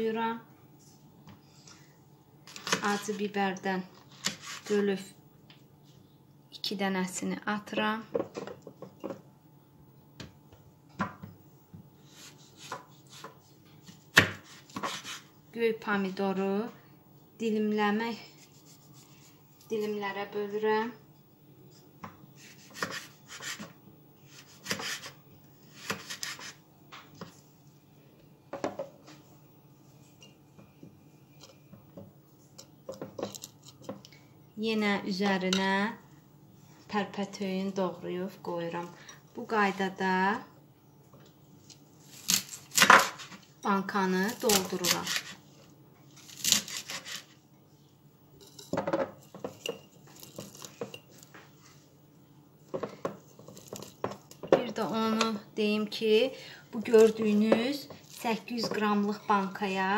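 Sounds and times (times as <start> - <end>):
knife slicing tomato: 4.1 - 4.8, 12.0 - 15.3, 22.4 - 23.7, 24.3 - 26.6, 44.2 - 45.4, 46.2 - 47.4.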